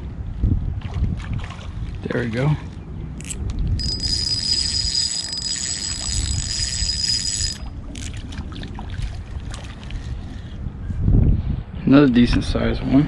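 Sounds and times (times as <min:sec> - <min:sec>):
short reel clicks: 0:03.2 - 0:07.6
fishing reel whirring: 0:03.2 - 0:07.7.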